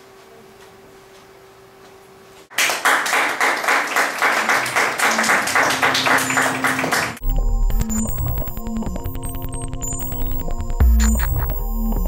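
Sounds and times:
low electronic tones: 0:07.2 - 0:12.0.

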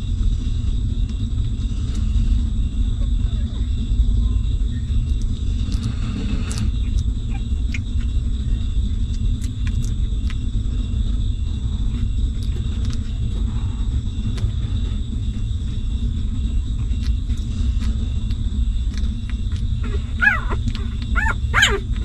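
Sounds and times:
steady low rumble: 0:00.0 - 0:22.0
puppies suckling: 0:04.8 - 0:22.0.

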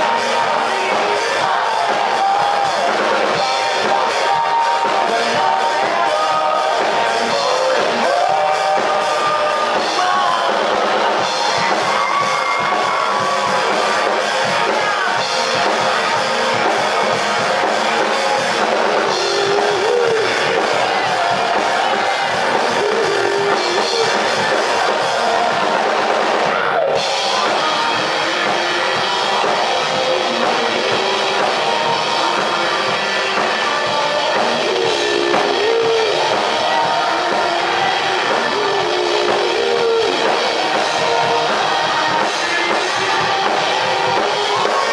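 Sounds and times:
live rock band playing: 0:00.0 - 0:44.9
man singing lead vocal: 0:00.0 - 0:44.9.

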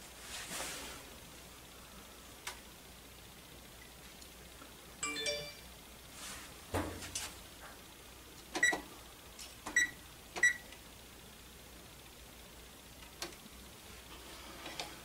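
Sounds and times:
phone alert chime: 0:05.0 - 0:05.7.

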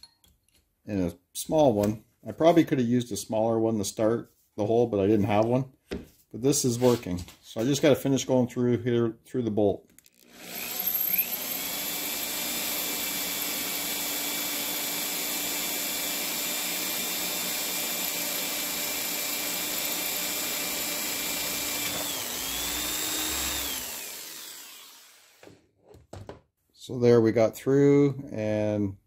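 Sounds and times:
electric drill boring steel: 0:10.0 - 0:25.5.

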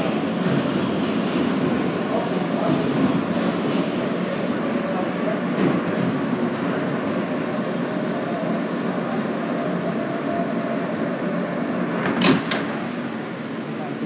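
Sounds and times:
subway train rumbling: 0:00.0 - 0:14.0.

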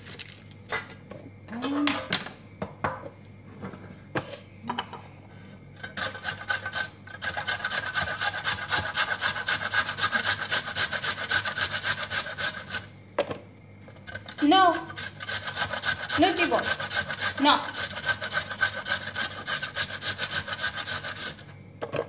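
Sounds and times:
carrot grating on metal grater: 0:05.8 - 0:12.9, 0:13.9 - 0:21.5.

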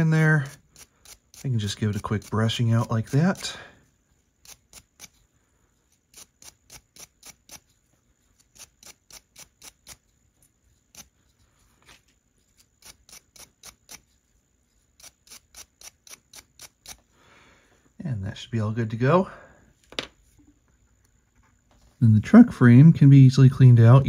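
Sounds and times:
scratchy cleaning strokes on gear: 0:00.0 - 0:17.1.

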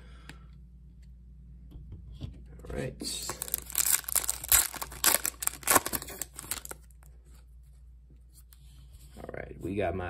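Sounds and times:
wrapper tearing and crinkling: 0:03.2 - 0:06.9.

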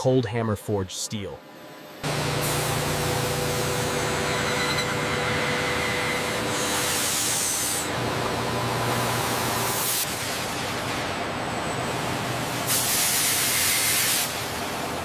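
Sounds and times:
drill boring into steel: 0:02.0 - 0:09.8
cutting fluid hissing: 0:02.0 - 0:10.1.

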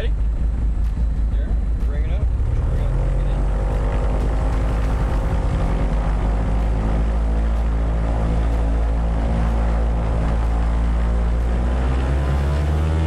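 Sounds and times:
airplane engines droning: 0:00.0 - 0:13.0.

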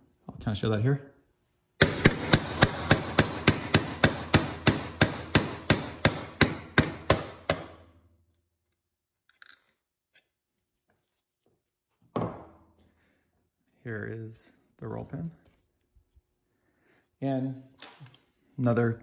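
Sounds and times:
hammer tapping steel punch: 0:01.8 - 0:07.8.

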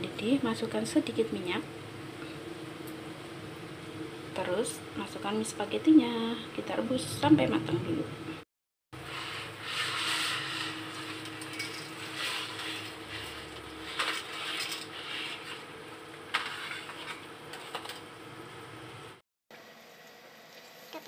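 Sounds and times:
water boiling in a pan: 0:09.0 - 0:21.0.

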